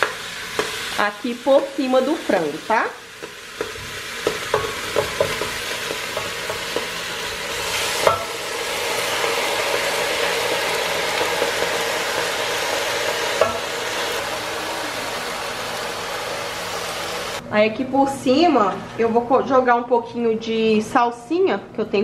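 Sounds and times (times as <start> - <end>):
food sizzling in a pot: 0.0 - 17.4.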